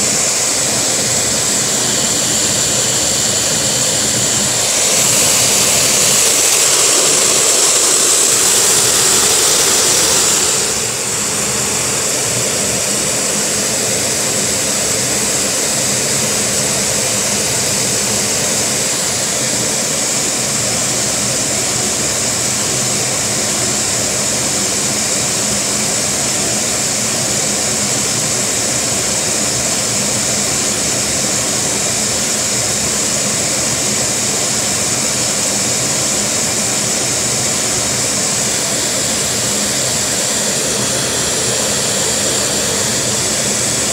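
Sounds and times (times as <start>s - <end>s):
small engine idling: 0.0s - 20.4s
vacuum cleaner running: 0.0s - 43.9s.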